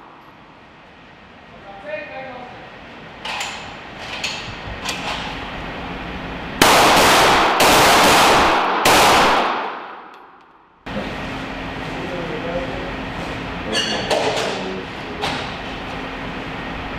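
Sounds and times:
pistol shots echoing indoors: 0:06.6 - 0:10.8.

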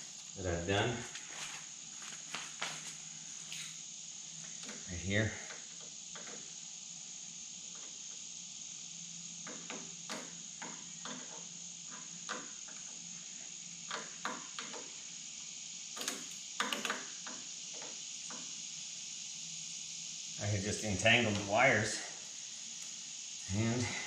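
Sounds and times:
high-pitched whine: 0:18.8 - 0:24.0.

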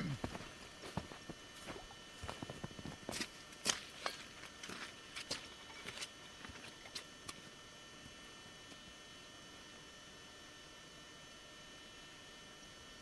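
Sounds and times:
footsteps crunching in snow: 0:00.2 - 0:06.8.

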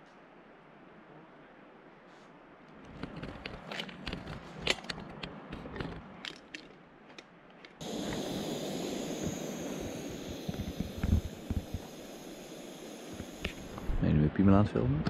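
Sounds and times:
gas burner hissing: 0:07.8 - 0:14.4.

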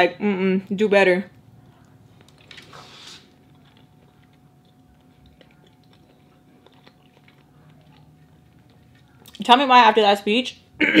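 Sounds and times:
quiet chewing: 0:01.3 - 0:09.5.

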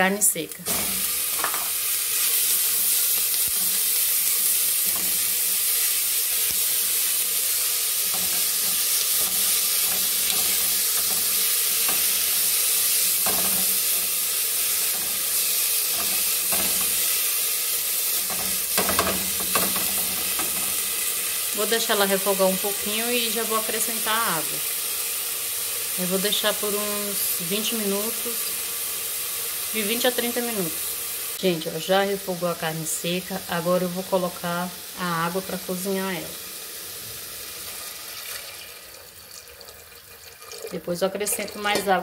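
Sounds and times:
meat sizzling in oil: 0:00.1 - 0:42.0.

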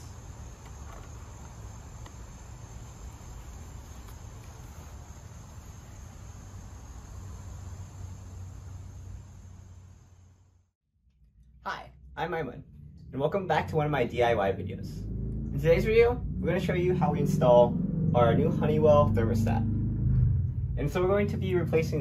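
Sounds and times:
crickets trilling: 0:00.0 - 0:10.5
low rumble: 0:11.1 - 0:22.0.

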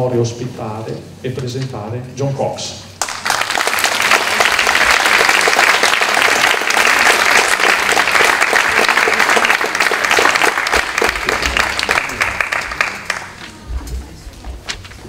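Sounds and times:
audience applauding: 0:03.0 - 0:13.6.

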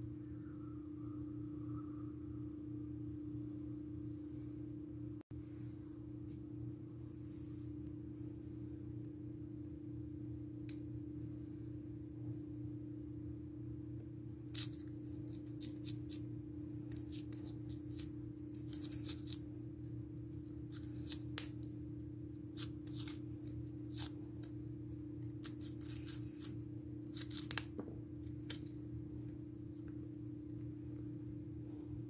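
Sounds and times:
low hum: 0:00.0 - 0:32.0
knife scraping skin: 0:22.5 - 0:24.5.

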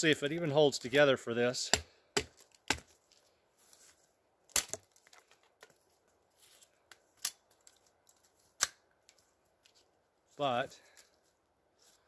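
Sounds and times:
knife chopping wooden pole: 0:01.7 - 0:02.9.

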